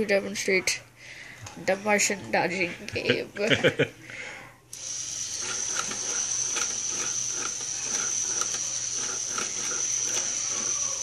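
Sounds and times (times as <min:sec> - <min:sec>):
small motor whining: 0:04.8 - 0:11.0.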